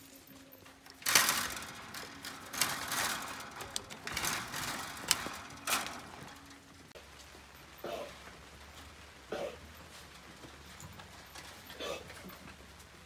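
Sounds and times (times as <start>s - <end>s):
wire mesh rattling: 0.0s - 7.0s.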